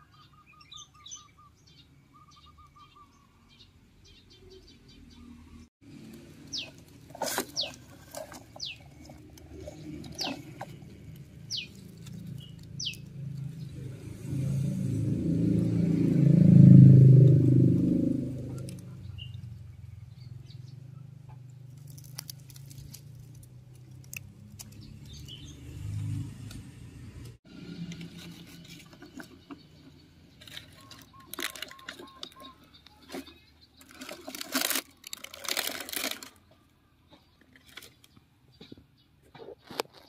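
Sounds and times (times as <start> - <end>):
motor vehicle hum: 3.5 - 39.6
toy truck clicking in leaves: 6.0 - 13.5, 21.7 - 25.3, 30.4 - 36.6.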